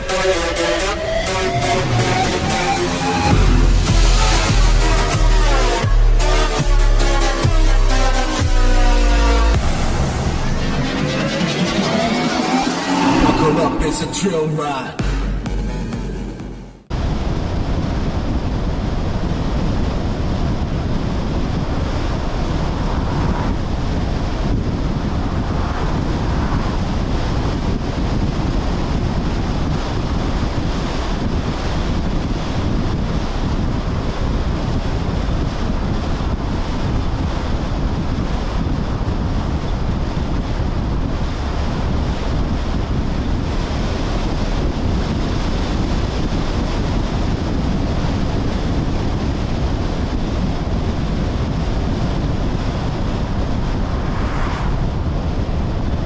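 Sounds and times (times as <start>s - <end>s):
road noise: 0.0s - 5.8s, 8.7s - 18.2s, 19.9s - 33.4s, 34.1s - 56.0s
wind rushing over microphone: 9.5s - 14.8s, 16.8s - 56.0s
car passing whoosh: 9.5s - 15.5s, 21.6s - 28.5s, 52.2s - 56.0s.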